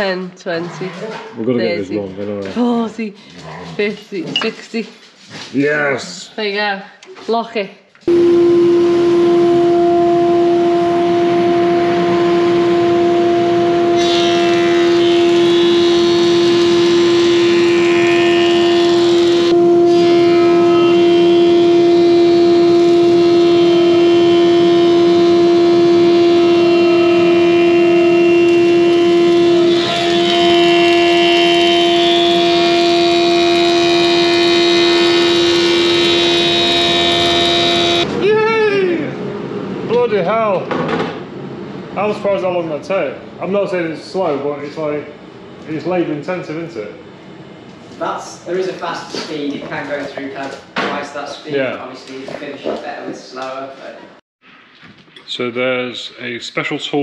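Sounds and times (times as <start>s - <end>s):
planer-thicknesser humming: 8.1s - 38.4s.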